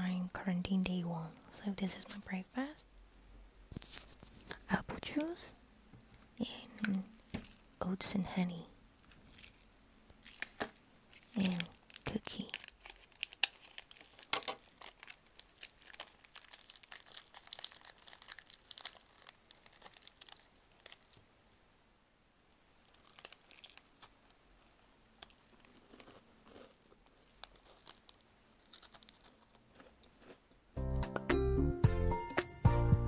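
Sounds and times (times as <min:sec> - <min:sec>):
plastic wrapper crinkling: 0:06.7 - 0:07.8, 0:09.0 - 0:21.3, 0:22.8 - 0:30.4
scissors cutting wrapper: 0:09.3 - 0:21.2, 0:22.9 - 0:24.1, 0:27.4 - 0:29.8.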